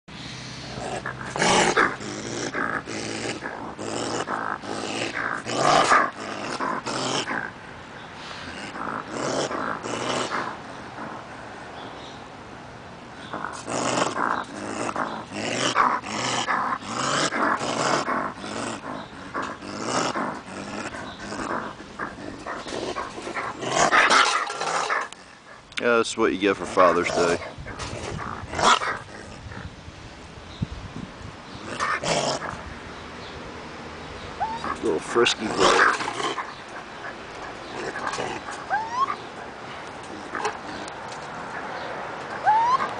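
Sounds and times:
raccoon growling: 0:00.6 - 0:07.6, 0:08.2 - 0:11.5, 0:13.2 - 0:25.6, 0:26.4 - 0:29.7, 0:31.5 - 0:32.7, 0:34.4 - 0:42.9
raccoon whistle-like call: 0:42.4 - 0:42.9.

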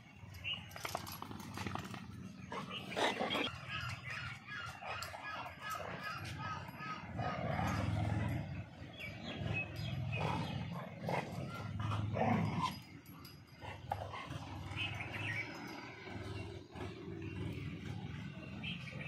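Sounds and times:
dogs growling: 0:00.3 - 0:19.0.

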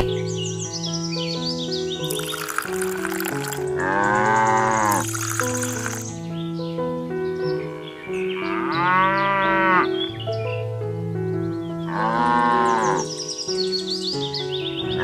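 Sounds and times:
background music with held notes: 0:00.0 - 0:15.0
cow mooing: 0:03.8 - 0:05.0, 0:08.4 - 0:10.0, 0:11.9 - 0:13.1.

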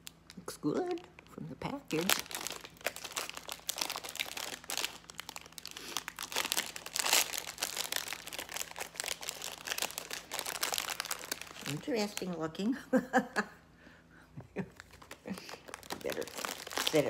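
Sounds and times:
plastic wrapper crinkling: 0:00.0 - 0:12.7, 0:14.7 - 0:17.0.

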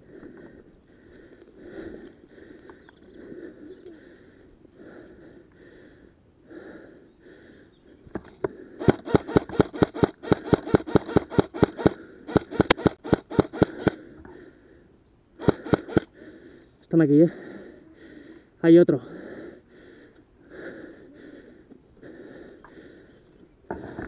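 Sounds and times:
close breathing: 0:00.0 - 0:24.0
airsoft rifle rapid shots: 0:08.8 - 0:14.0, 0:15.4 - 0:16.1.

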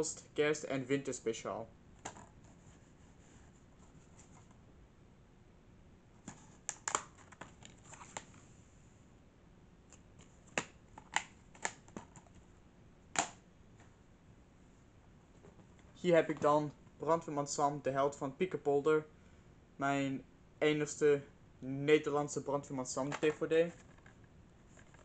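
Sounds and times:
plastic case clicking and snapping: 0:06.6 - 0:08.3, 0:09.9 - 0:12.3.

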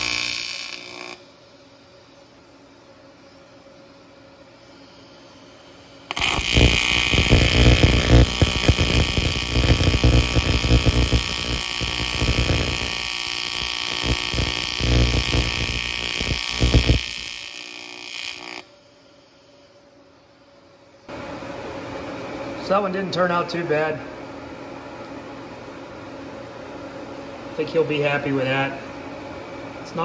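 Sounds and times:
welding arc buzzing and crackling: 0:00.0 - 0:01.3, 0:05.6 - 0:18.7.

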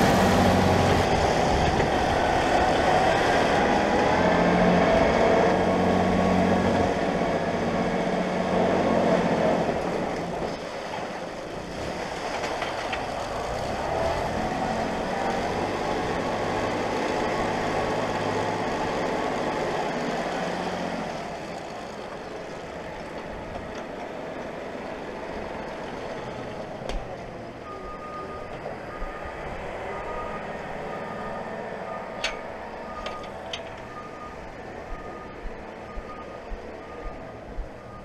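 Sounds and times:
tractor engine running: 0:00.0 - 0:38.0
reversing alarm beeping: 0:27.6 - 0:38.0.

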